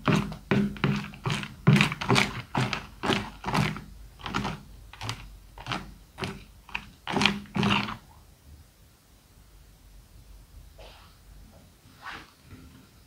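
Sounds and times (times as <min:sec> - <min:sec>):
sticky slime squelching: 0:00.0 - 0:08.1.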